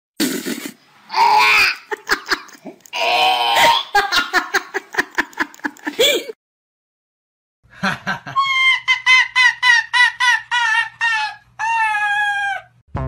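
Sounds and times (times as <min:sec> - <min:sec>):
person laughing: 0:01.6 - 0:02.8, 0:04.0 - 0:06.4, 0:07.8 - 0:12.6.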